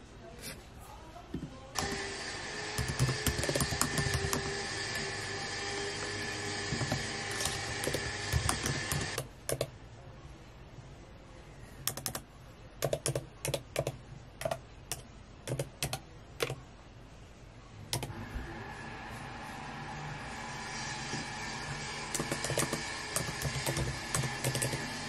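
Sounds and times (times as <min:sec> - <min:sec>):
typing on laptop keyboard: 0:02.8 - 0:04.6, 0:06.8 - 0:09.7, 0:11.8 - 0:12.2, 0:12.8 - 0:16.6, 0:22.1 - 0:24.9.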